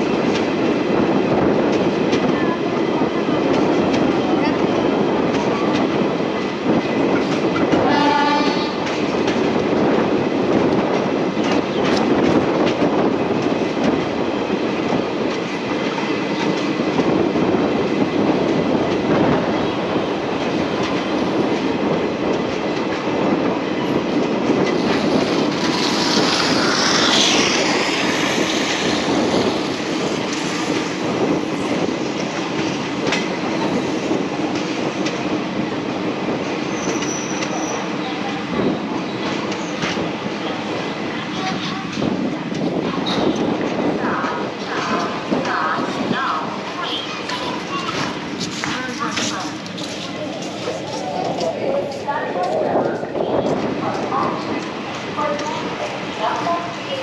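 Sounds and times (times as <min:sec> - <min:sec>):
clickety-clack of rail joints: 0:00.0 - 0:57.0
train wheels rumbling on rails: 0:00.0 - 0:57.0
wheel squeal: 0:36.7 - 0:37.9.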